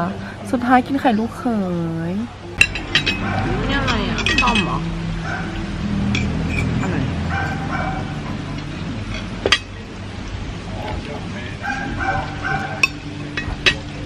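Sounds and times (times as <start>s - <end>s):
low murmur of voices: 0.0s - 14.0s
cutlery clinking on plate: 2.6s - 4.8s, 6.1s - 7.6s, 12.4s - 14.0s.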